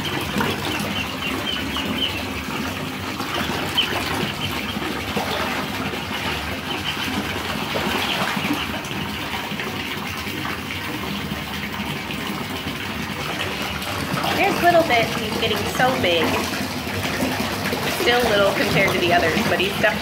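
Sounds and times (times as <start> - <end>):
ducklings peeping: 0.0 - 12.8
tap running into bathtub: 0.0 - 20.0.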